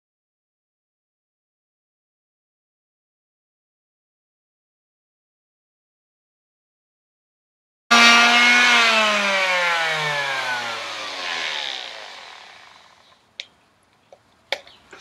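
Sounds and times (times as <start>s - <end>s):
palm sander motor winding down: 7.9s - 13.0s.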